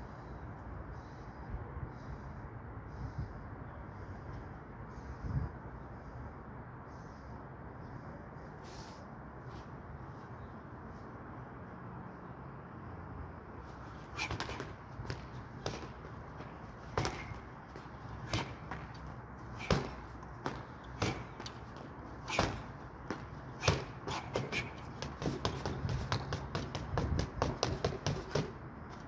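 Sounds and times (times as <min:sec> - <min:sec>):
punches striking punching bag: 0:16.9 - 0:17.4, 0:18.2 - 0:18.8, 0:19.6 - 0:21.6, 0:22.2 - 0:28.6.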